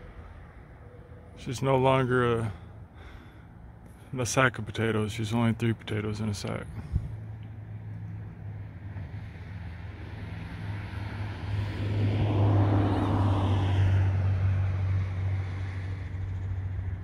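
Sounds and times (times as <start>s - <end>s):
vehicle passing by: 6.7s - 17.0s.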